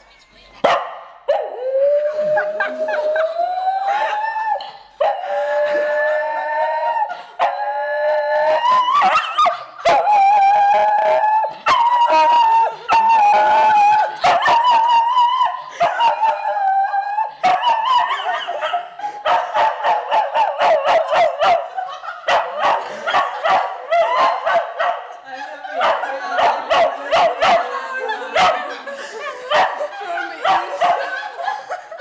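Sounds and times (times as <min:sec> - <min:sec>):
dog howling: 0:01.3 - 0:24.9.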